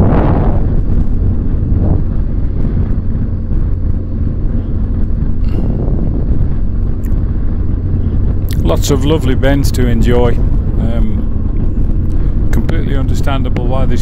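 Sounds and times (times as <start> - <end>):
motorcycle engine drone: 0.0 - 14.0
wind rushing over microphone: 0.0 - 14.0.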